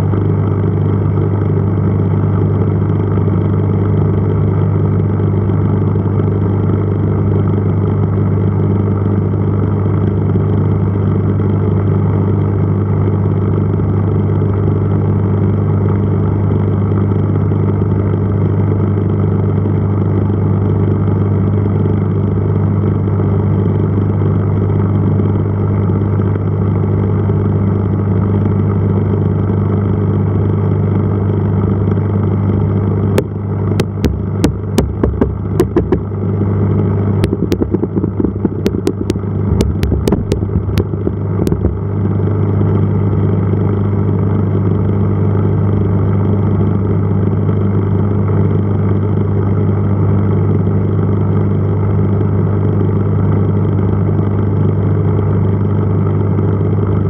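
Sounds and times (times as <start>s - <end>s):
aquarium pump humming: 27.6s - 52.6s.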